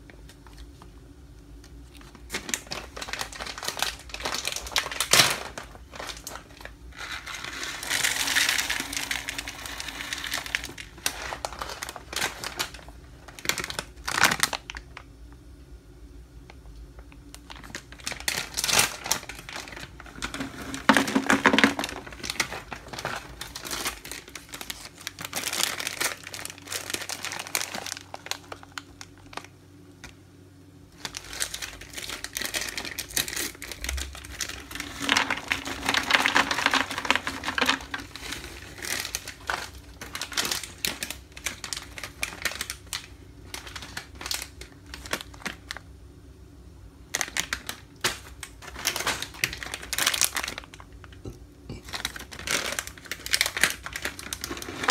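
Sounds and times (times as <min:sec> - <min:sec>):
plastic packets crinkling: 0:00.0 - 0:15.2, 0:16.5 - 0:30.2, 0:30.9 - 0:46.0, 0:47.1 - 0:54.9
nuts pouring into plastic jar: 0:07.0 - 0:12.6, 0:18.9 - 0:23.9, 0:34.4 - 0:41.0.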